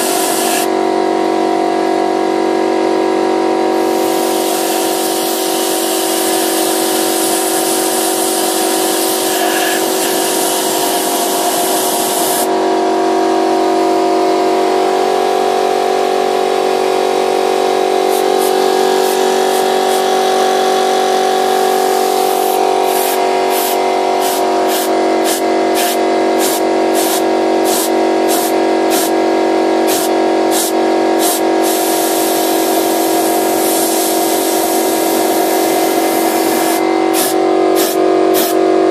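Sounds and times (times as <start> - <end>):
compressed air hissing from blow gun: 0.0 - 0.7, 3.8 - 12.5, 18.1 - 20.2, 22.0 - 29.1, 29.9 - 38.6
air compressor running: 0.0 - 38.9.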